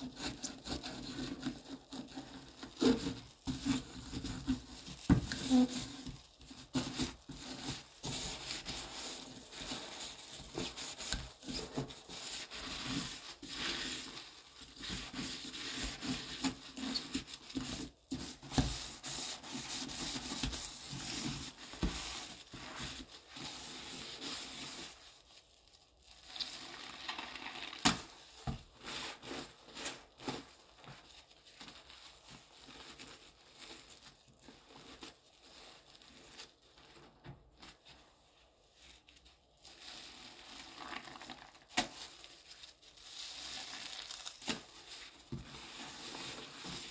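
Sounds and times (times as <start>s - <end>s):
sponge scrubbing sink: 0.1s - 25.4s, 43.0s - 46.9s.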